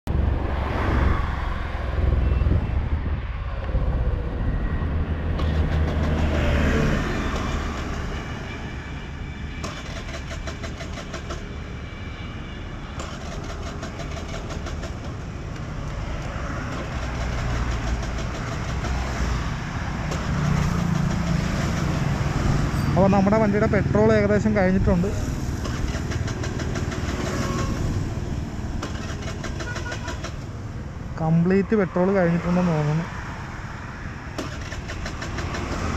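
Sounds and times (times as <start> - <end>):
wind rushing over microphone: 0.1 - 9.6.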